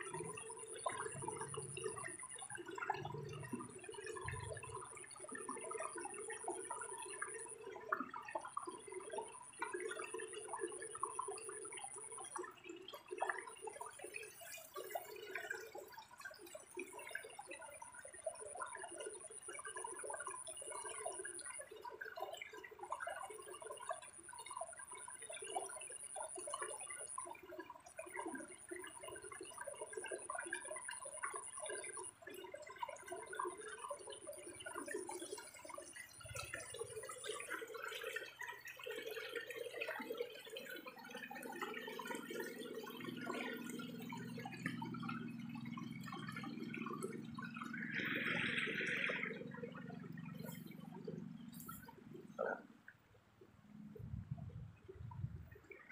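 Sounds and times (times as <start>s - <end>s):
water sloshing and dripping: 0.0s - 55.9s
low hum: 46.4s - 55.6s.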